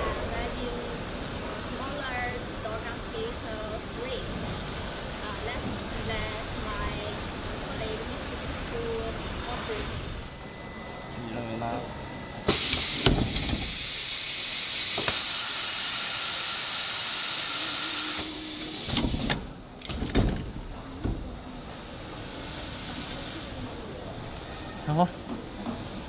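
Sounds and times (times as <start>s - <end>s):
pneumatic clamps clacking: 12.5s - 14.0s, 17.7s - 21.3s
compressed air hissing: 12.5s - 19.6s.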